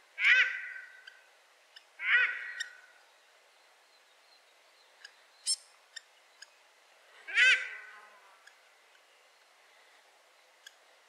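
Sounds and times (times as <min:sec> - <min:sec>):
duck calling: 0:07.3 - 0:08.0.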